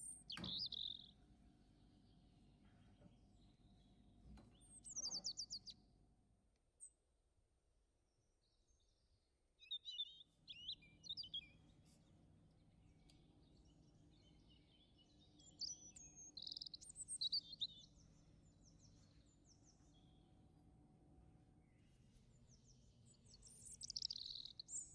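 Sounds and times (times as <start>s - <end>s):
small birds chirping: 0.0s - 5.9s, 8.2s - 20.7s, 21.5s - 24.9s
faint low hum: 0.0s - 24.9s.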